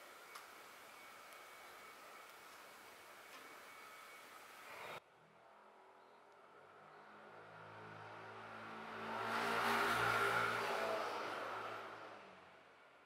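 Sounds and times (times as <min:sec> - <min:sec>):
vehicle passing: 0:06.5 - 0:12.6.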